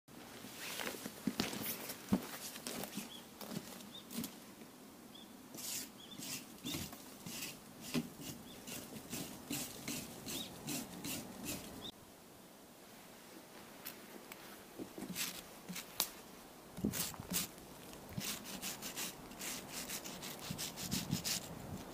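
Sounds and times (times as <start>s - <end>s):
wire brush scrubbing concrete: 16.8s - 17.5s, 18.2s - 21.5s.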